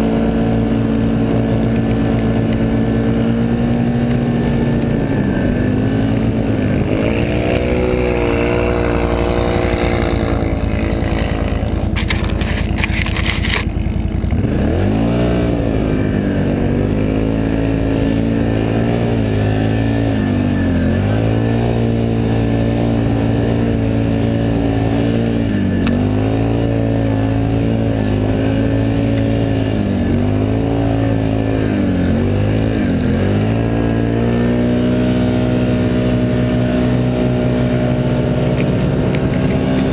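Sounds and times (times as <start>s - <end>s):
atv engine revving: 0.0s - 39.9s
harsh scraping noise: 5.3s - 14.4s.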